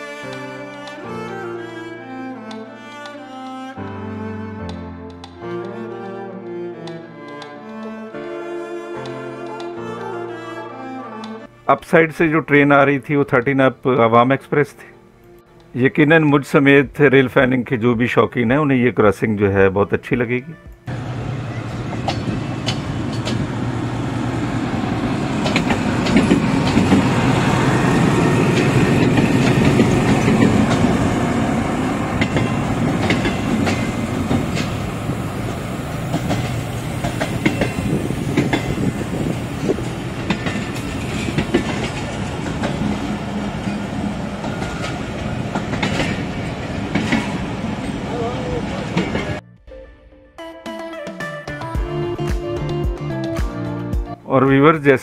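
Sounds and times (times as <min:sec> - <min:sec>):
diesel locomotive engine: 0:20.9 - 0:49.4
train wheels clicking over rail joints: 0:21.7 - 0:23.8, 0:25.2 - 0:31.2, 0:32.1 - 0:48.0.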